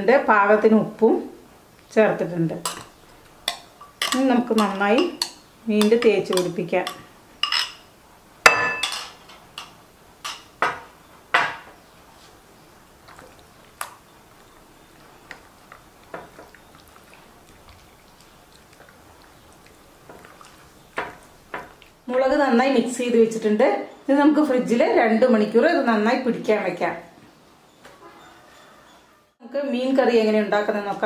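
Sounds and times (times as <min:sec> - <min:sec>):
glass bowl clinking and knocking: 0:08.5 - 0:09.3.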